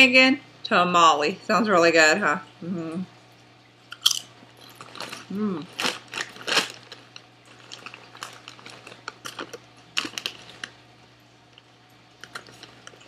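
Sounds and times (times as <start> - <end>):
chip bag crinkling: 4.0 - 13.0.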